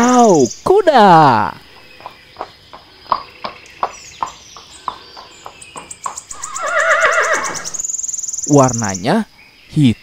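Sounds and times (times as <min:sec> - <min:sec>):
horse hooves clopping: 0:01.4 - 0:07.8
horse whinnying: 0:06.3 - 0:07.8.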